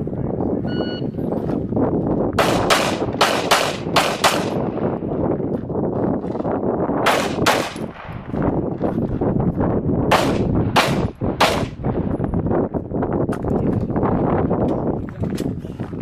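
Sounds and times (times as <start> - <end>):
handgun shots: 2.4 - 4.7, 7.0 - 8.2, 10.1 - 11.8.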